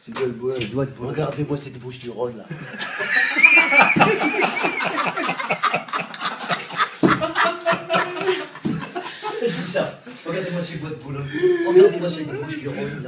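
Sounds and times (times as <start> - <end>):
audience laughing: 2.5 - 9.9
audience clapping: 3.4 - 8.7.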